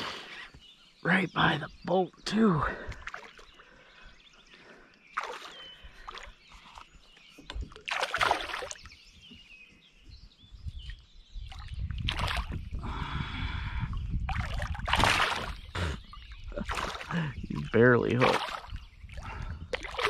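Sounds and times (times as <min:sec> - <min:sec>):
water splashing around kayak: 0:02.8 - 0:03.8, 0:05.1 - 0:09.1, 0:11.4 - 0:12.8, 0:14.1 - 0:20.0.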